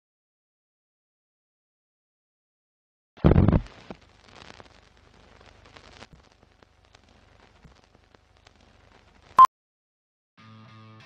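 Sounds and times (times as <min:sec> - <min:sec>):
film crackle and clicks: 0:03.4 - 0:09.4.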